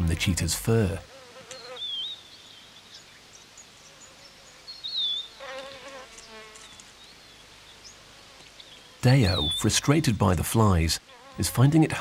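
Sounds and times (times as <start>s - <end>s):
flies buzzing: 0.7s - 2.0s, 3.8s - 9.2s, 10.9s - 12.0s.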